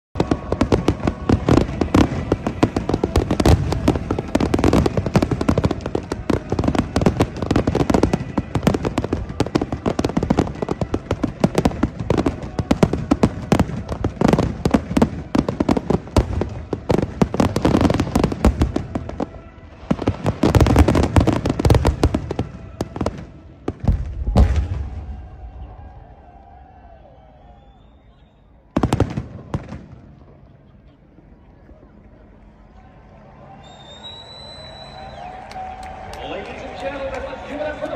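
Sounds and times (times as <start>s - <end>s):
fireworks bangs and crackling: 0.2s - 25.9s, 28.7s - 30.4s
deep firework boom: 19.9s - 25.6s.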